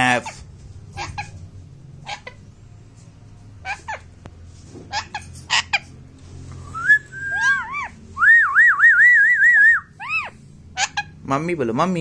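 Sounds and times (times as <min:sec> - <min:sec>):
parakeet squawks: 0:00.0 - 0:02.5, 0:03.6 - 0:04.2, 0:04.9 - 0:06.0, 0:07.2 - 0:08.0, 0:10.0 - 0:11.2
parakeet warbling whistle: 0:06.8 - 0:10.3.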